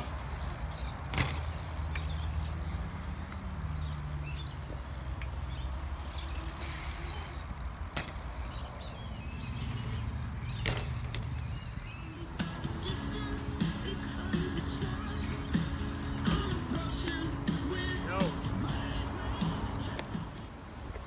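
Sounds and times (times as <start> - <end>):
bike clicks and knocks: 0.0 - 12.7, 18.8 - 21.0
bike tyres rolling on concrete: 0.0 - 21.0.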